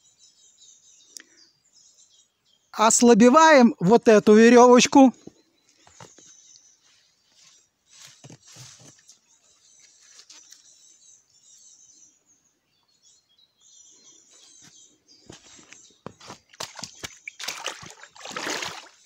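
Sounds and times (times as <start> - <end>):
small birds chirping: 0.0 - 19.0
water splashing and rustling: 16.1 - 19.0.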